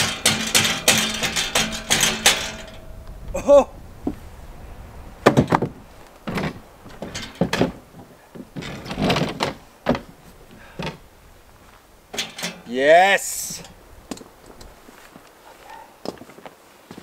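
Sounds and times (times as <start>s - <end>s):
metal clunks and scrapes: 0.0s - 3.1s, 5.2s - 12.7s, 13.4s - 15.1s.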